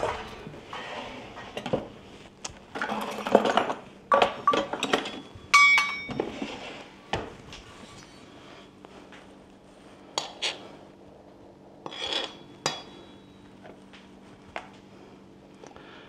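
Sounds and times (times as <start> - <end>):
metal cup clinking on bowl: 4.1 - 6.2.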